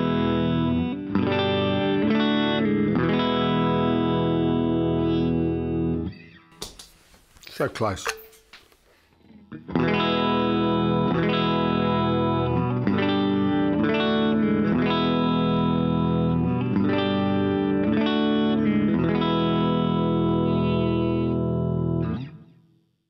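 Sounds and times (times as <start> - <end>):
strummed electric guitar chords: 0.0 - 6.5, 9.2 - 22.6.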